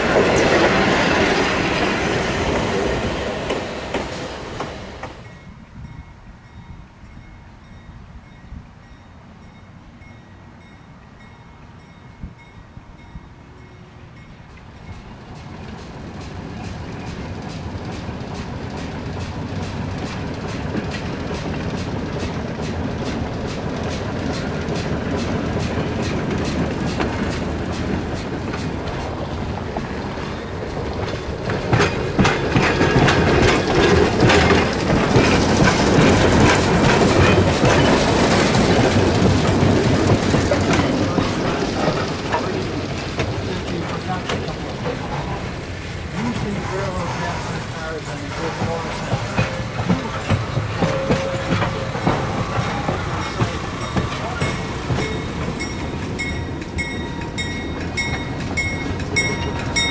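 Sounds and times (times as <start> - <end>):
diesel locomotive engine: 0.0 - 59.9
wheels clicking over rail joints: 14.6 - 59.9.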